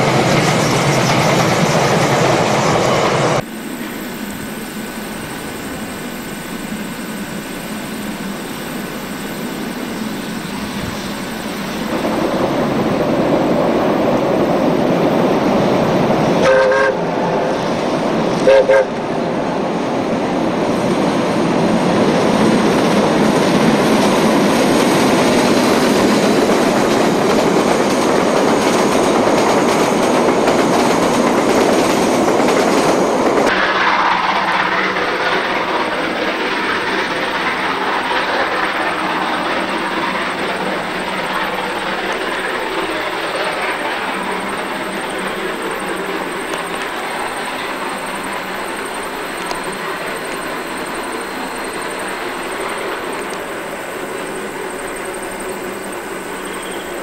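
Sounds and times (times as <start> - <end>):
train rumbling over viaduct: 0.0 - 57.0
steam whistle blasts: 16.4 - 17.6, 18.4 - 19.0, 56.4 - 57.0.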